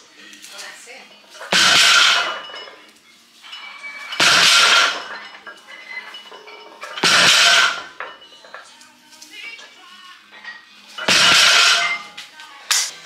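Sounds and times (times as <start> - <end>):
barbell clanking on floor: 4.1 - 8.1.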